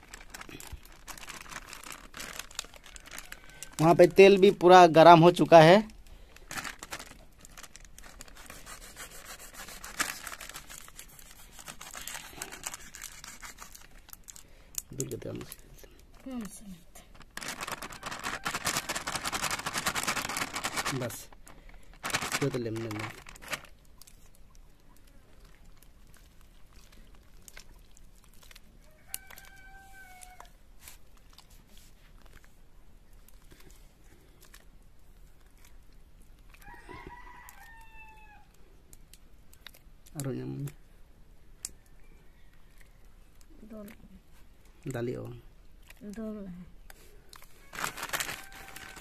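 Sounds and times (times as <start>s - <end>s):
plastic packet crinkling: 0.0s - 15.6s, 16.2s - 24.5s, 25.2s - 32.6s, 45.8s - 49.0s
hand mixing wet batter: 7.2s - 36.7s
rooster crowing: 28.8s - 30.5s, 36.6s - 38.5s, 47.6s - 49.0s.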